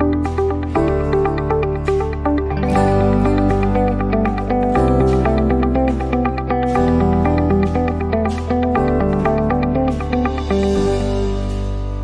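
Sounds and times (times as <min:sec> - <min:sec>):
background music with chords: 0:00.0 - 0:12.0.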